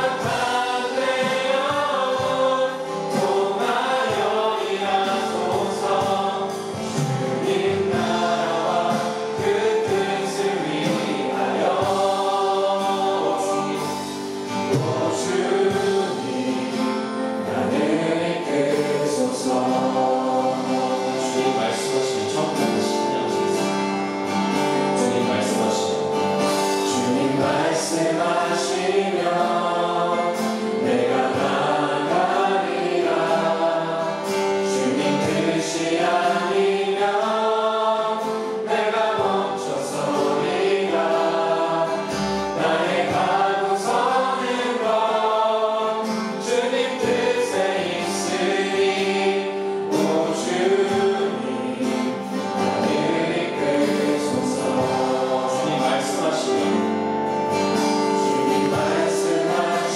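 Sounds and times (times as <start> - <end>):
acoustic guitar: 0.0 - 59.9
group singing praise song: 0.0 - 59.9.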